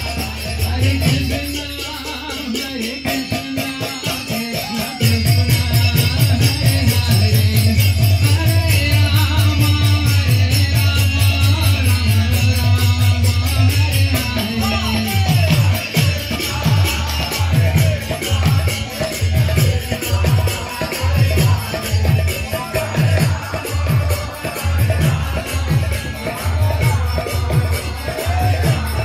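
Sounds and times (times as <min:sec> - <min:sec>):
jingling percussion: 0:00.0 - 0:29.0
group chanting: 0:13.0 - 0:29.0.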